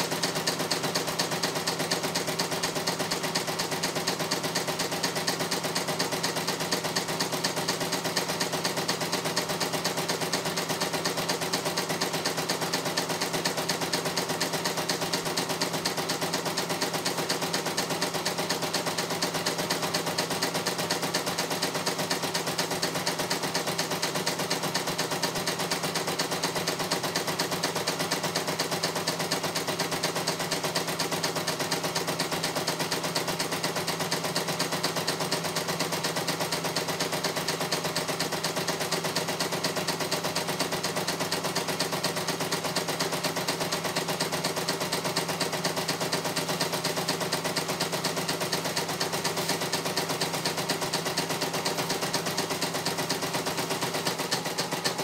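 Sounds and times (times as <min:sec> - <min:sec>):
embroidery machine needle clatter: 0:00.0 - 0:55.0.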